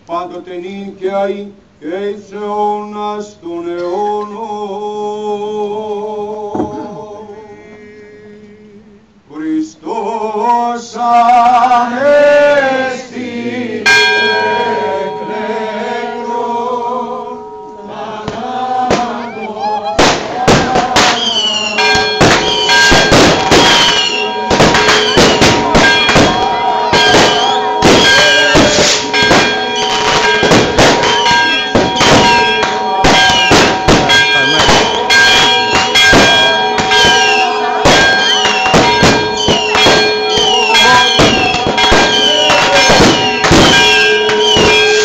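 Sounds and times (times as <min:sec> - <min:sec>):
church bells ringing: 0:13.8 - 0:16.3, 0:21.5 - 0:45.0
firecrackers banging: 0:18.2 - 0:45.0
fireworks whistling: 0:18.3 - 0:45.0.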